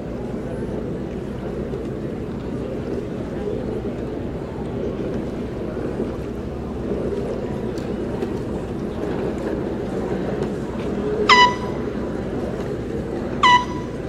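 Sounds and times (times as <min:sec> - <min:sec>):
low background murmur: 0:00.0 - 0:14.0
high-pitched horn blasts: 0:11.2 - 0:12.1, 0:13.4 - 0:14.0.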